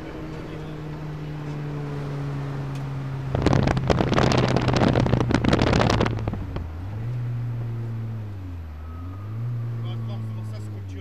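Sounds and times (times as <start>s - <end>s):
rally car engine from cabin: 0.0s - 11.0s
loud dense crackling rattle: 3.4s - 6.4s.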